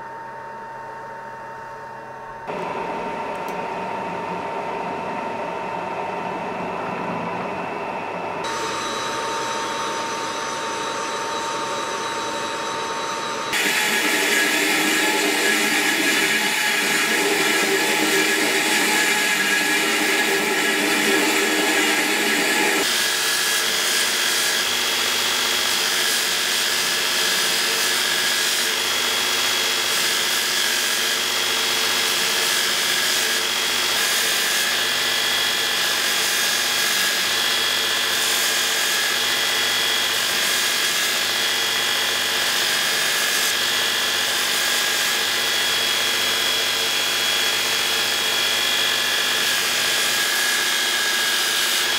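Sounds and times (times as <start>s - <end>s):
belt grinder whining: 8.4s - 51.9s
wood sanding on abrasive belt: 13.5s - 28.9s, 38.0s - 48.3s, 48.9s - 51.9s.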